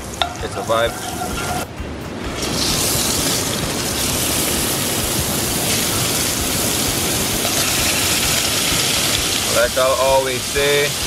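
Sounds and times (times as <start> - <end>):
chicken sizzling in oil: 2.4 - 11.0.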